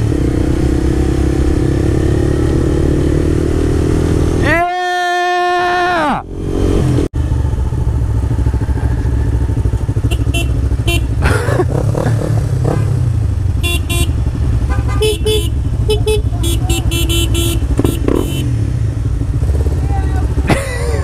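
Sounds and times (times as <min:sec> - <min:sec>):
motorcycle engines idling: 0:07.2 - 0:21.0
horn toots: 0:10.0 - 0:11.4, 0:12.6 - 0:18.7.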